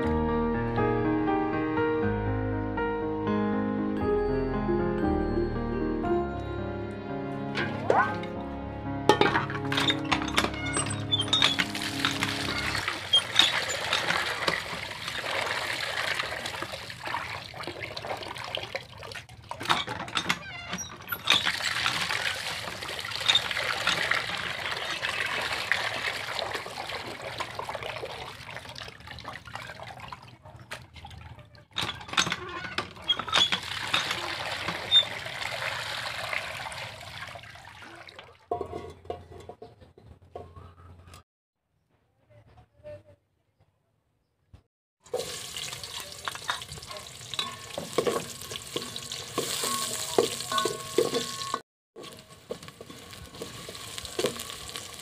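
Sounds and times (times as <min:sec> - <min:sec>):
water splashing into metal pot: 0:11.2 - 0:20.0, 0:20.8 - 0:31.4, 0:33.1 - 0:38.8, 0:45.1 - 0:55.0
hands washing chicken in water: 0:11.5 - 0:19.8, 0:21.2 - 0:31.7, 0:33.4 - 0:38.5, 0:45.1 - 0:55.0.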